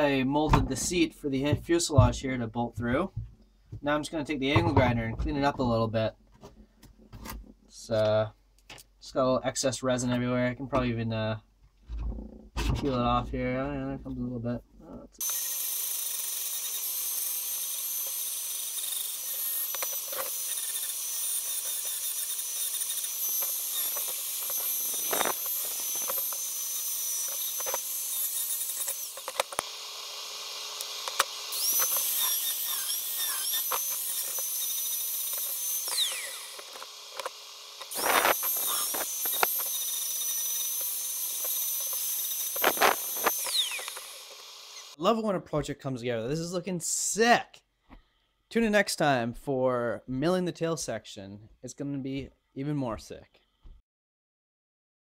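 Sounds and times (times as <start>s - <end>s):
angle grinder whining: 15.2s - 45.0s.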